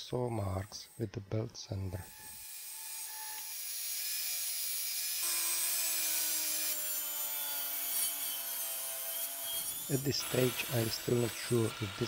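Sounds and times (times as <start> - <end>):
power saw cutting wood: 1.9 - 12.0
belt sander running: 5.2 - 12.0.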